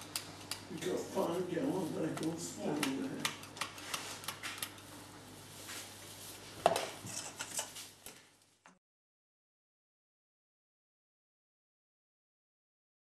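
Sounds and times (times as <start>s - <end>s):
metal scoop clicking and scraping: 7.0s - 7.8s.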